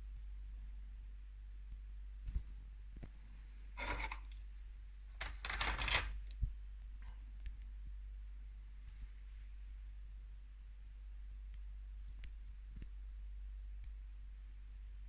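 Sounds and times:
short scraping rattles: 3.8s - 4.4s
plastic toy parts clicking: 5.2s - 6.4s.

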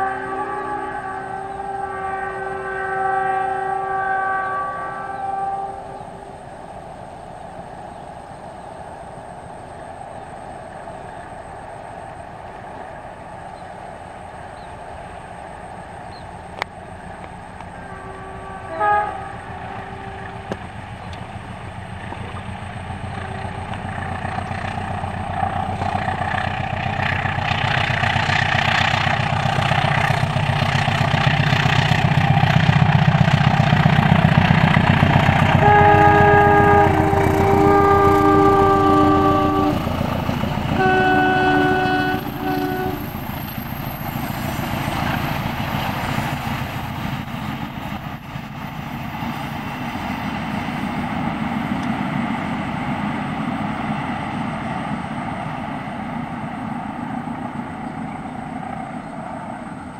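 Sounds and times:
locomotive air horn blasts: 0.0s - 6.3s, 17.6s - 20.8s, 35.2s - 43.4s
train passing rumble: 0.0s - 59.9s.

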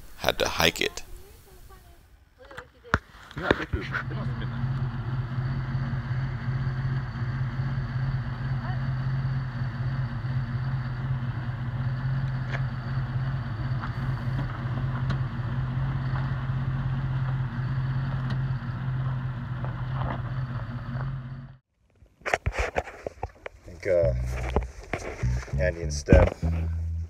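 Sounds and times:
car engine running: 3.4s - 21.6s, 23.8s - 27.0s.

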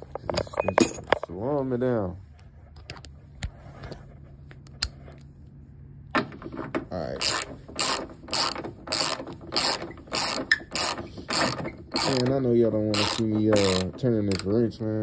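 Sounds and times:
ratchet wrench clicking: 7.2s - 14.6s.

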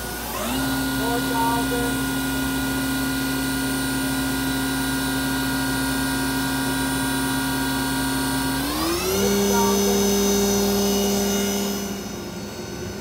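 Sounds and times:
lathe spindle motor whine: 0.0s - 13.0s.

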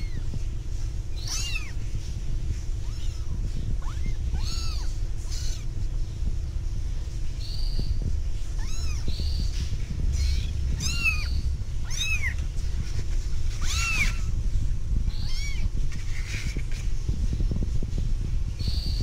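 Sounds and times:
steady low hum: 0.0s - 19.0s
kittens mewing: 1.1s - 2.0s, 2.6s - 5.8s, 8.4s - 14.4s, 15.0s - 16.9s.

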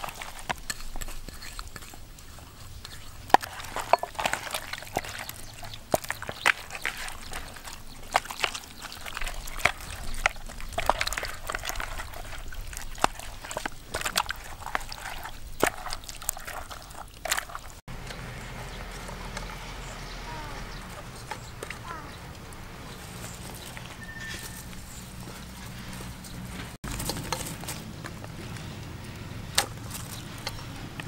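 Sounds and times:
hands squishing marinade into meat: 0.0s - 17.9s
low outdoor background: 0.0s - 31.0s.

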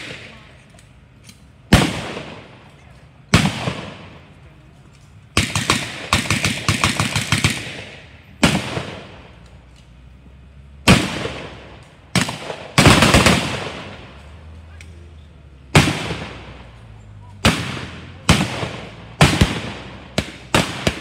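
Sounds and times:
single gunshots with echo: 3.3s - 4.2s, 15.7s - 21.0s
automatic gunfire bursts: 5.4s - 9.2s, 10.9s - 14.0s, 17.3s - 21.0s.

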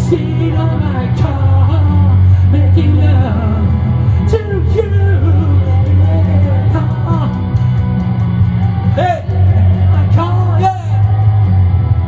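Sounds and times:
man singing: 0.0s - 7.6s, 8.9s - 11.2s
bass: 0.0s - 12.0s
electric guitar: 0.0s - 12.0s.

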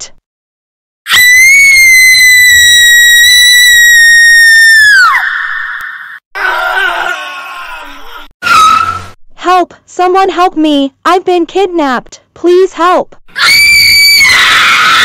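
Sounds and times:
woman screaming: 1.1s - 8.9s, 13.4s - 15.0s.

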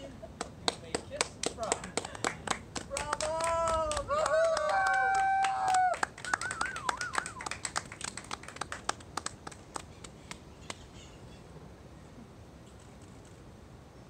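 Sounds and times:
small group clapping: 0.4s - 10.8s.

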